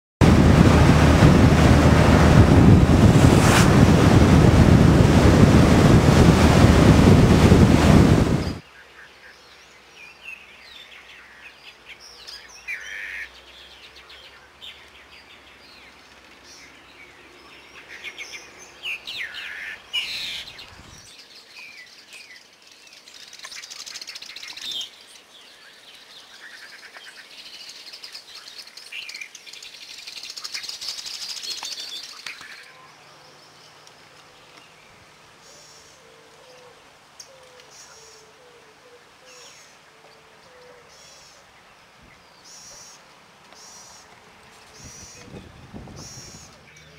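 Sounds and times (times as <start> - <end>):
wind rush on microphone: 0.2 - 8.6, 20.7 - 21.1, 44.7 - 46.7.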